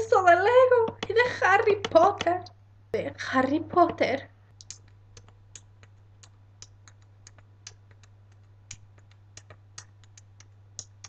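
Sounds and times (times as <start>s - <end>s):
faint irregular clicks: 3.8s - 11.0s.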